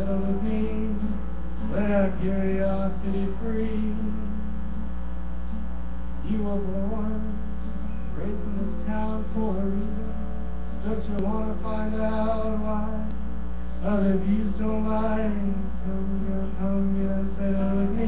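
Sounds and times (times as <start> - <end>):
chant-like singing: 0.0 - 4.5, 13.8 - 18.0
low electrical hum: 0.0 - 18.0.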